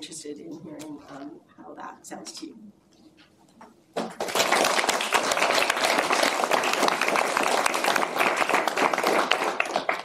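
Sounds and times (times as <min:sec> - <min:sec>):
audience applauding: 0:04.1 - 0:10.0.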